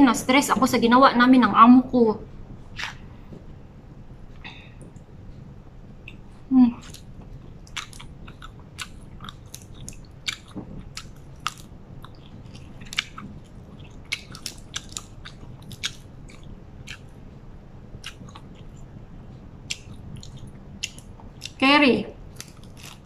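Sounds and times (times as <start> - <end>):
person chewing food: 2.7 - 3.4, 6.0 - 17.2, 18.0 - 19.0, 19.6 - 21.6, 22.2 - 23.0.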